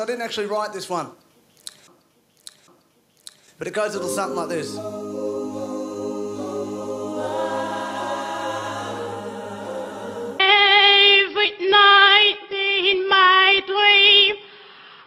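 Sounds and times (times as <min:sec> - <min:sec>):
held choir chord: 0:03.9 - 0:10.7
high solo singing voice: 0:03.9 - 0:14.4.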